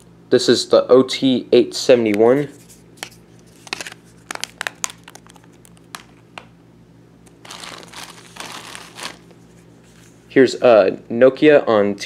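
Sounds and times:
plastic mailer bag crinkling: 3.4 - 6.2, 7.3 - 9.7.

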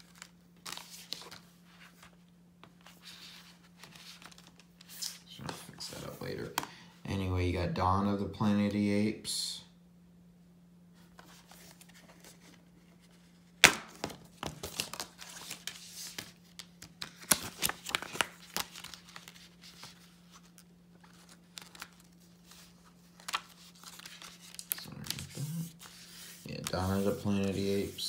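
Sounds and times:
paper crackling: 0.0 - 6.6, 14.5 - 28.0.

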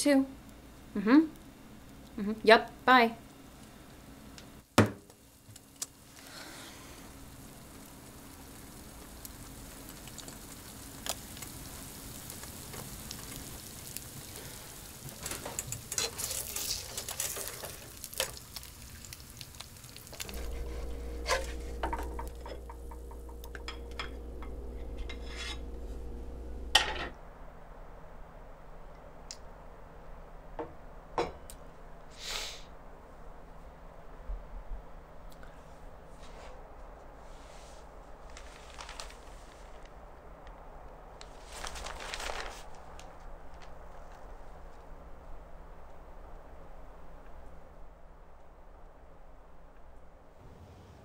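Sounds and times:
egg sizzling in a pan: 3.3 - 27.0
low hum with held tone: 19.8 - 32.1
spatula scraping a pan: 20.2 - 26.4.

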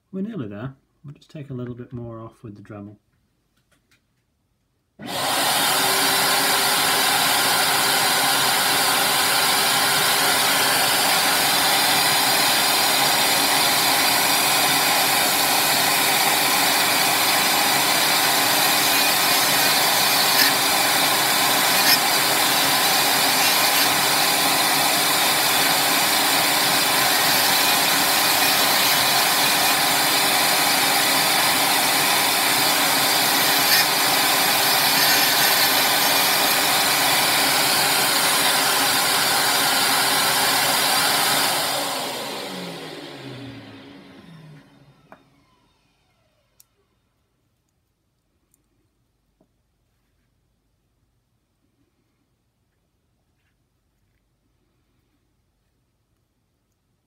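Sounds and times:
rotary tool grinding plastic: 16.1 - 38.9.

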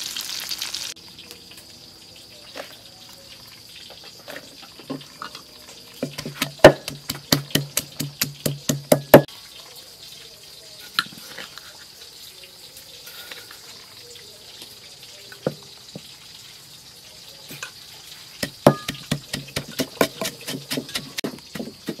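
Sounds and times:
pestle pounding in wooden mortar: 6.0 - 9.3, 18.4 - 22.0.

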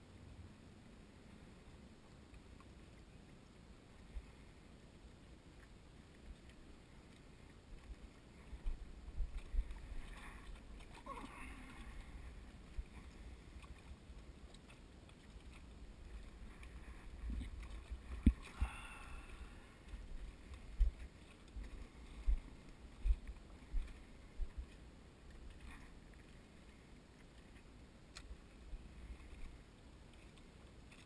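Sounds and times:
small waves lapping against dock: 0.0 - 31.0
wind rumbling on microphone: 6.2 - 26.8.

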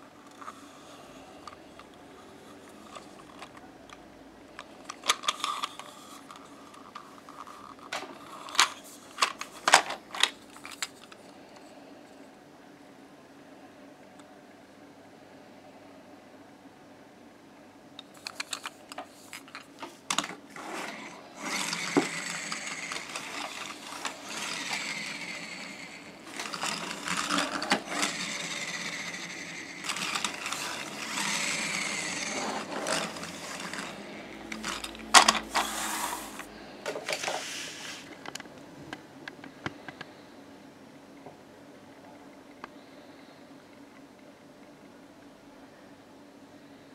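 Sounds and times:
toy motor gears whirring: 5.0 - 10.9, 20.5 - 36.5.

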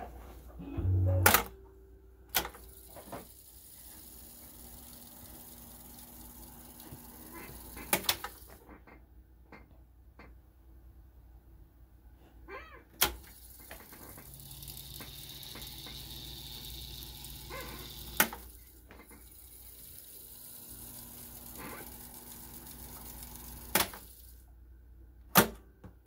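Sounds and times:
tape deck motors whirring: 2.3 - 8.6, 13.0 - 24.4.

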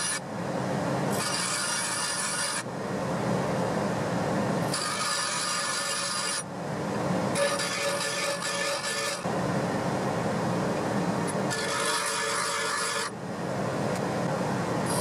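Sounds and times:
steel grinding on grinder wheel: 0.0 - 0.2, 1.1 - 2.7, 4.6 - 6.5, 7.3 - 9.3, 11.2 - 13.2
bench grinder motor hum: 1.1 - 2.6, 4.7 - 6.4, 7.4 - 9.2, 11.5 - 13.1.

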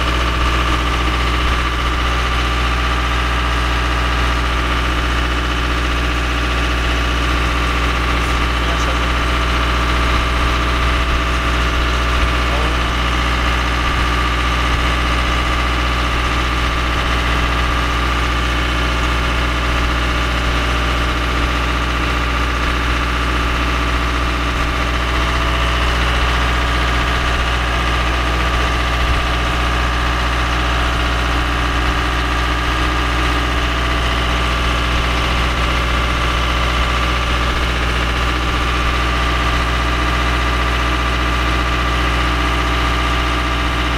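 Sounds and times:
diesel machinery drone: 0.0 - 43.9.

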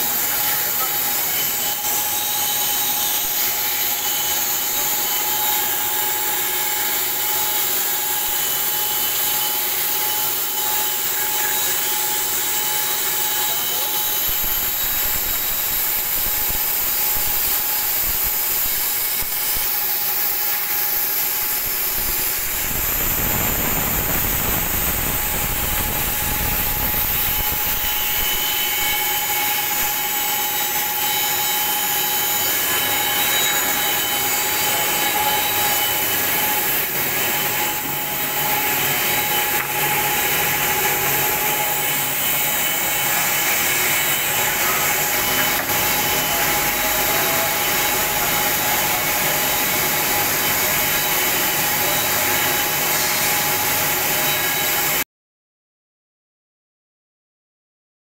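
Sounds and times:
planer whining: 0.0 - 55.0
rough wood cutting noise: 0.0 - 55.0.

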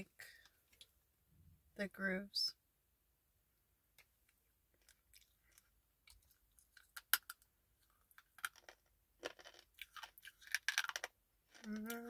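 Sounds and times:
teeth crunching clay bar: 4.8 - 12.0.

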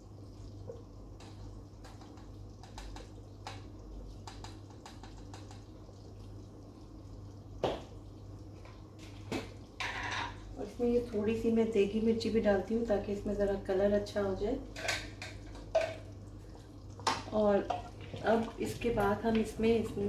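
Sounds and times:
gravy simmering in a pot: 0.0 - 20.0
small ticks and pops: 0.6 - 9.8.

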